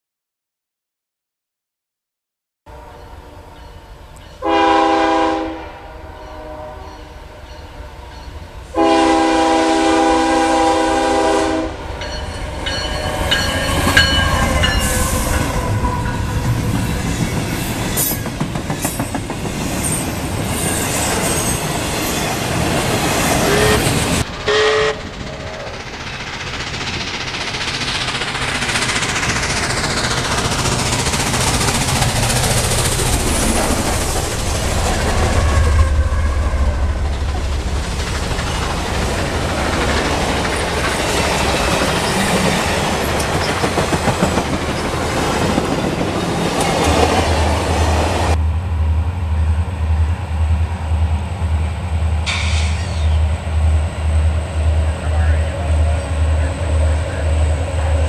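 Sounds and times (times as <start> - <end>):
locomotive air horn: 2.7 - 3.6, 4.4 - 11.9, 14.6 - 16.2, 23.3 - 25.1
train wheels clattering on rails: 12.0 - 35.5, 36.9 - 48.4, 52.2 - 53.4.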